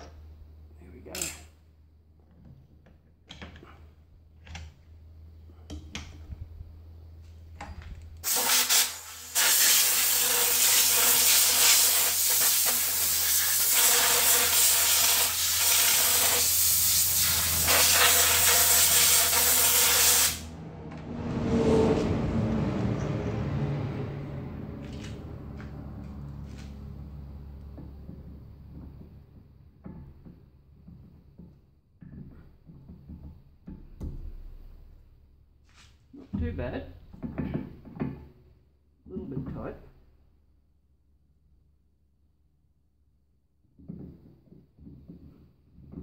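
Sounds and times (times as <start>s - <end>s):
compressed air blow gun hissing: 8.2s - 20.5s.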